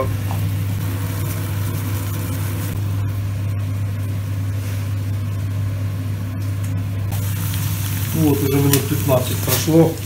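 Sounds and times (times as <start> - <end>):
kitchen appliance humming: 0.0 - 10.0
mushrooms sizzling in a pan: 7.1 - 10.0.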